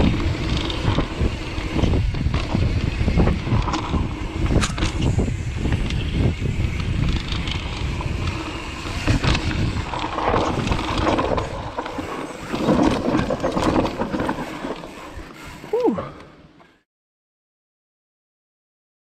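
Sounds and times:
wind buffeting microphone: 0:00.0 - 0:15.3
bike knocks and rattles: 0:00.0 - 0:15.4
bike tyres rolling on dirt: 0:00.0 - 0:16.8.

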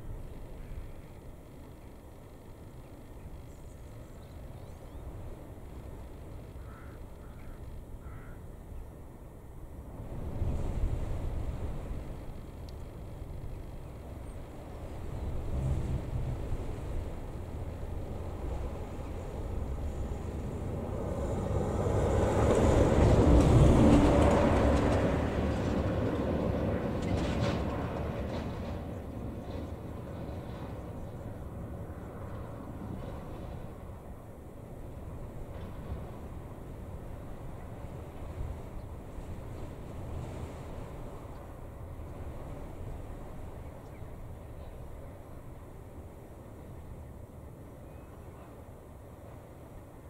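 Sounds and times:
faint bird calls: 0:06.5 - 0:09.0
wind buffeting microphone: 0:08.9 - 0:47.2.

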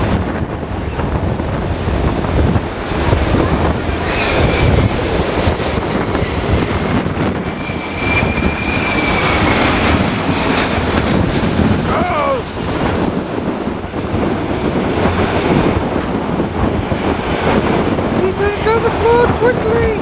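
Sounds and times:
jet engine roar: 0:00.0 - 0:20.0
wind buffeting microphone: 0:00.0 - 0:20.0
high thin engine whine: 0:02.4 - 0:14.6.

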